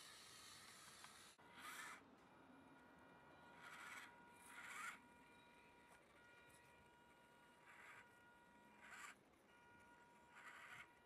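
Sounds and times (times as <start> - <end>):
short raspy whirr: 0.0 - 2.0, 3.6 - 5.0, 10.3 - 10.9
small electric motor whine: 0.0 - 11.0.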